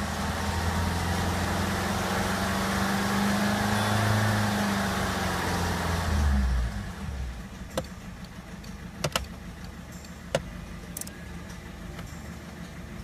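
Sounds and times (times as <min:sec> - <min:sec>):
diesel engine idling: 0:05.1 - 0:13.0.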